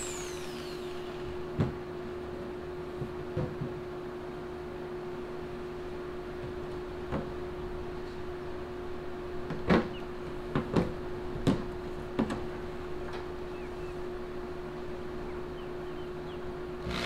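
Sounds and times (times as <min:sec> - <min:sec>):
steady hum: 0:00.0 - 0:02.6.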